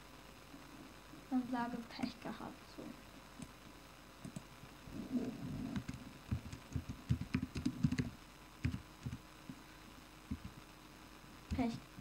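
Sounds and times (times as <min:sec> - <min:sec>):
keyboard typing: 0:05.7 - 0:09.2.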